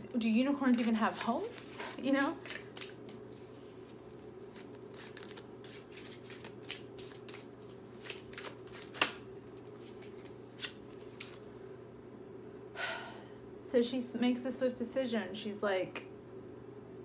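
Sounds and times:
cards being shuffled: 0.7s - 11.4s.

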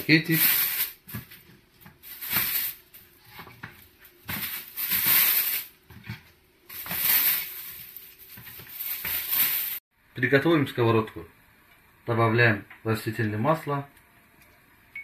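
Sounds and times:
plastic bag crinkling and rustling: 6.7s - 9.8s.

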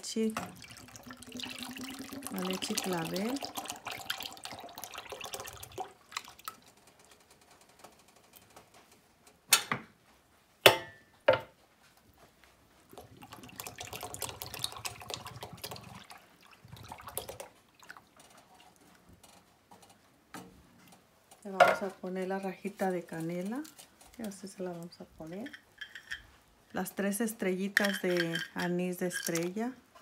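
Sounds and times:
milk pouring into milk: 0.4s - 7.0s, 12.9s - 19.0s.

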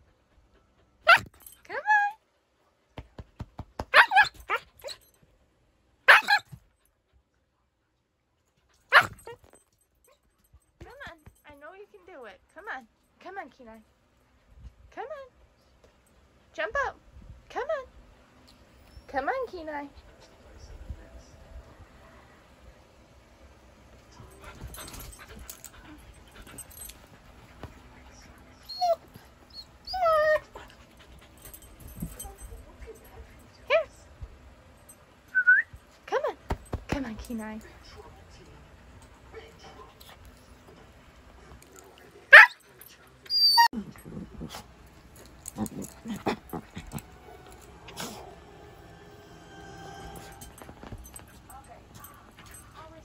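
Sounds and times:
puppy yipping and whining: 3.9s - 5.1s, 6.1s - 6.5s, 28.6s - 30.7s, 42.3s - 42.6s, 43.2s - 43.8s
dog whining: 28.6s - 30.7s, 43.2s - 44.6s.

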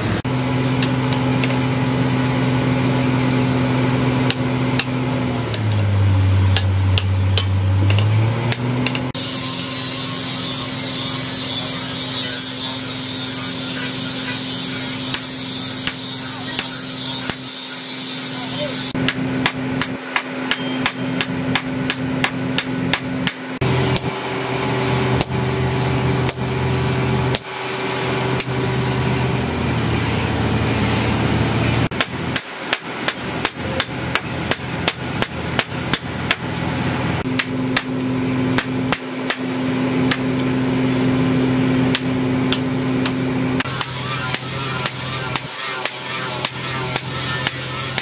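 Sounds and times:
hammers striking steel on anvil: 4.2s - 5.9s, 6.5s - 24.1s, 31.9s - 36.6s, 37.2s - 40.6s, 41.8s - 48.0s.

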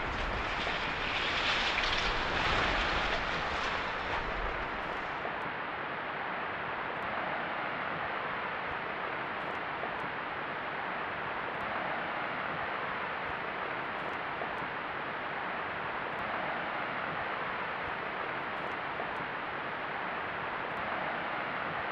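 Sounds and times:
chimney collapsing rumble: 0.0s - 5.3s
steady hiss: 0.0s - 5.4s.

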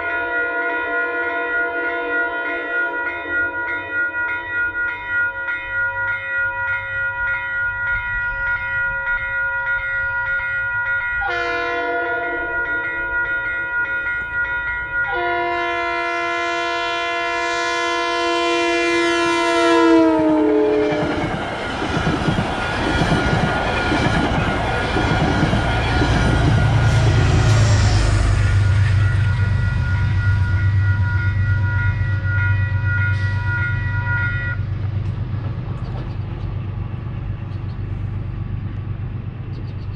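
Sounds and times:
train horn: 0.0s - 3.8s, 11.2s - 13.1s, 15.1s - 21.4s, 25.6s - 34.7s
crossing warning bell ringing: 0.0s - 35.4s
train coaches rumbling past: 0.0s - 39.9s.

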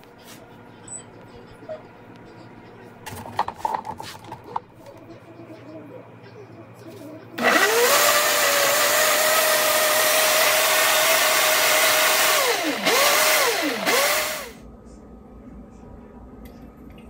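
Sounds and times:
blender motor: 7.4s - 14.6s.

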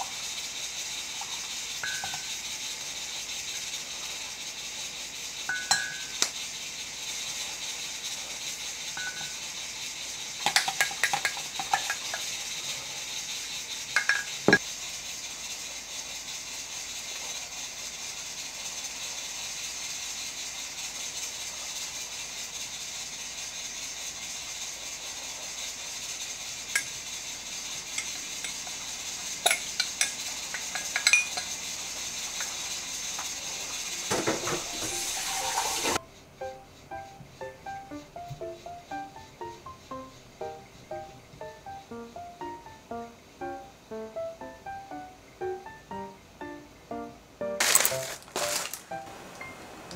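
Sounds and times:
steady hiss: 0.0s - 49.9s
dishes and utensils clinking: 1.8s - 2.3s, 5.5s - 6.3s, 9.0s - 9.4s, 10.4s - 12.3s, 14.0s - 14.6s, 29.4s - 31.6s, 34.1s - 36.0s.

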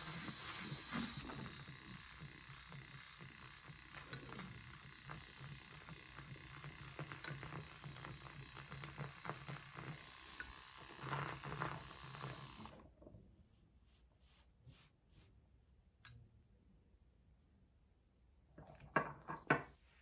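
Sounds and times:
milk frother whirring: 0.0s - 13.2s.

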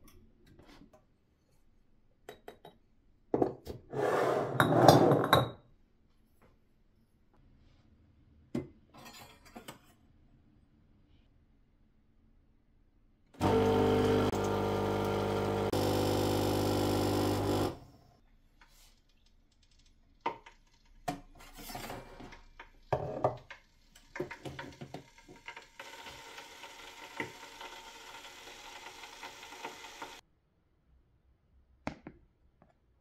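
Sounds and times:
espresso machine pump humming: 13.4s - 17.9s, 25.8s - 30.2s.

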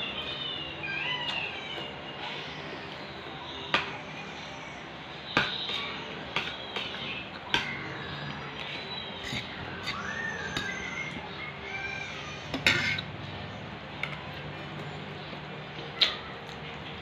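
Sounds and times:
cutlery clinking on a plate: 12.5s - 13.1s.

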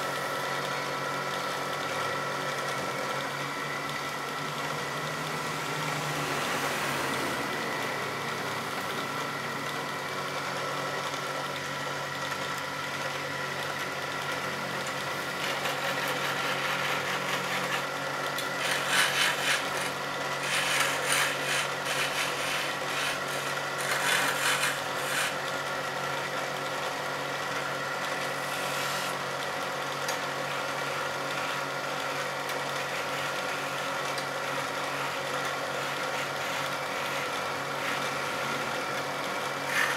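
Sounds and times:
wood lathe running: 0.0s - 39.9s
chisel scraping spinning wood: 13.6s - 25.9s, 28.0s - 29.4s, 30.0s - 39.9s.

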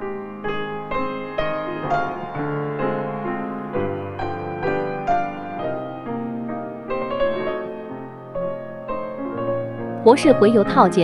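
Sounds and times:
piano playing single notes: 0.0s - 11.0s.

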